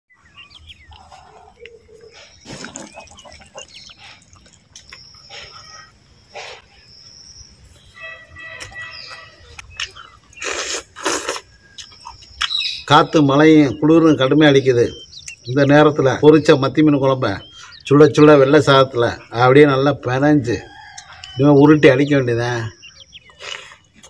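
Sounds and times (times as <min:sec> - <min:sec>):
birds chirping and whistling: 0:00.1 - 0:24.0
person eating by hand: 0:00.2 - 0:06.8, 0:09.4 - 0:12.6, 0:23.2 - 0:24.0.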